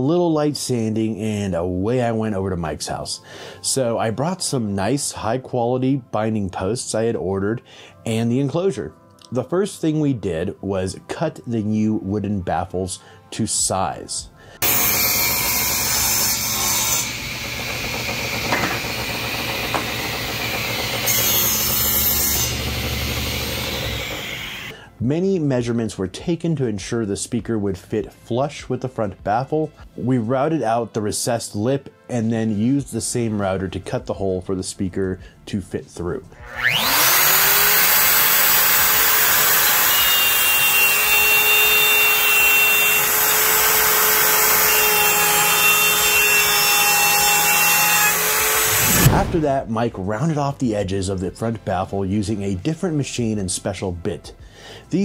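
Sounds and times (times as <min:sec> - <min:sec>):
saw blade running: 0:14.6 - 0:24.7, 0:36.4 - 0:49.4
table saw cutting wood: 0:14.6 - 0:24.7, 0:36.4 - 0:49.5.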